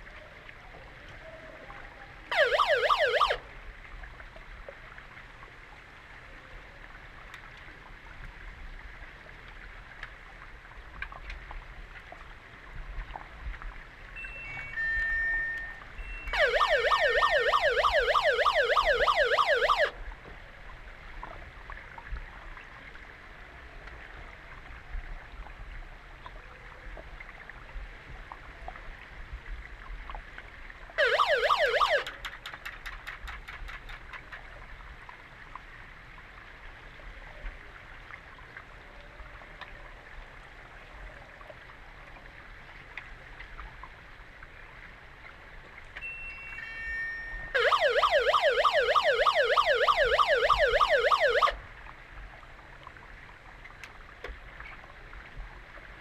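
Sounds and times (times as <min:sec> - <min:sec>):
underwater siren warbling: 0:02.3 - 0:03.5, 0:14.2 - 0:20.0, 0:31.0 - 0:32.4, 0:47.3 - 0:51.6.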